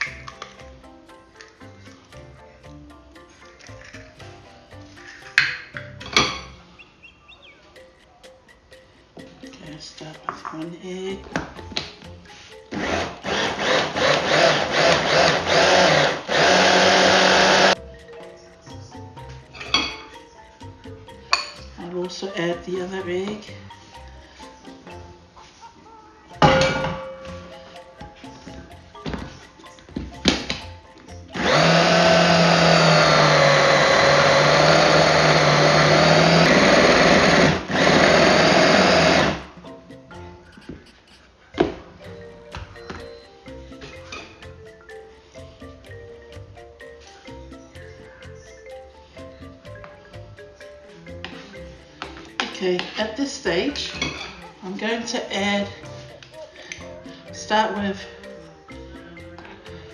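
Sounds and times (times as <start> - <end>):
hand blender chopper motor: 12.7 - 17.8, 31.4 - 39.4.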